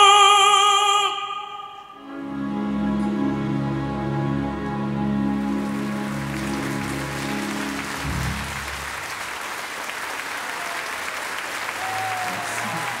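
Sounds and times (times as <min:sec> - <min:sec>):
tenor and choir held chord: 0:01.0 - 0:09.1
crowd applauding: 0:05.3 - 0:13.0.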